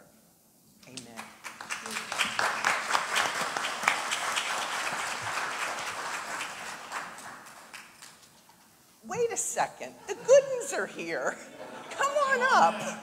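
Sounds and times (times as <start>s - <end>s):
crowd applauding: 1.2s - 8.4s.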